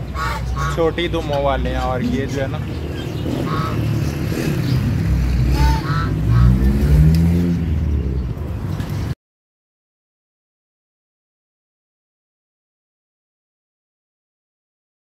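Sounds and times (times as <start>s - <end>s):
road traffic rumbling: 0.0s - 9.2s
vehicle engine revving: 2.0s - 8.4s.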